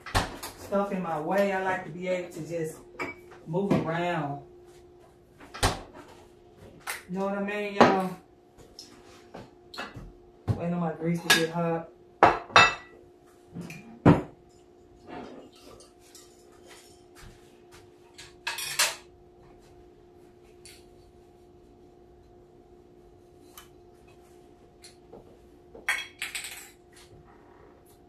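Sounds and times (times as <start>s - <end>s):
steady hum: 0.0s - 28.0s
dishes and utensils clattering: 12.3s - 13.0s, 13.6s - 17.2s, 18.1s - 19.1s, 25.8s - 27.0s.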